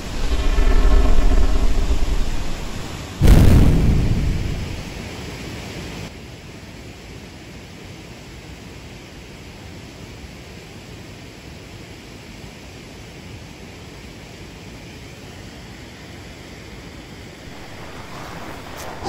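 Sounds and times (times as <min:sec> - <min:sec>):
sudden deep boom: 0:00.0 - 0:04.8
pitched hum: 0:00.0 - 0:04.9, 0:17.4 - 0:19.0
steady hiss: 0:00.0 - 0:19.0.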